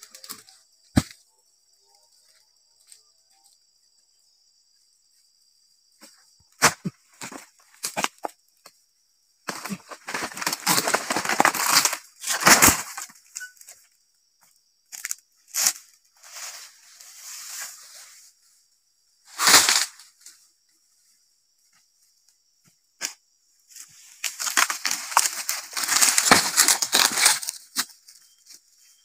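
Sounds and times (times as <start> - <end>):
palm fronds rustling crash: 9.5 - 13.2, 19.3 - 20.1, 23.7 - 27.9.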